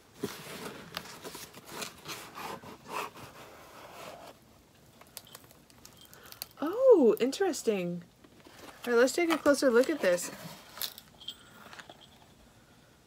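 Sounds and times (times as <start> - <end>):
cardboard rubbing and scraping: 0.2 - 4.4.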